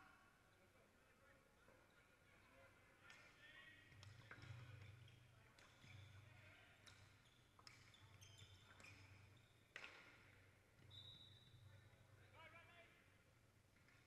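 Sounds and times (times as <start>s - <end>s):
hockey sticks striking ball: 6.8s - 10.9s.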